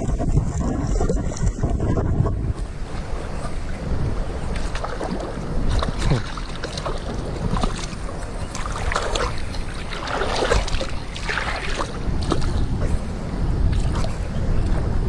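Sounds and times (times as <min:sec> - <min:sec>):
wind buffeting microphone: 0:00.0 - 0:15.0
fish splashing in water: 0:04.5 - 0:12.7.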